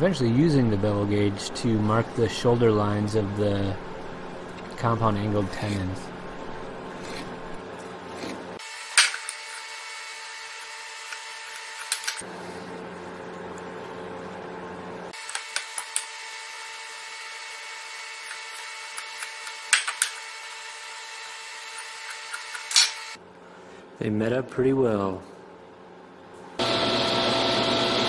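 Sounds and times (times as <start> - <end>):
knife blade scraping wood: 6.9 - 9.8.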